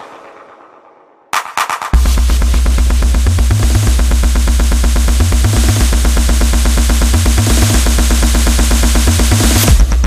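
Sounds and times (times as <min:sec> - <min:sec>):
fast percussion hits: 0:01.3 - 0:10.0
deep bass riff: 0:02.0 - 0:10.0.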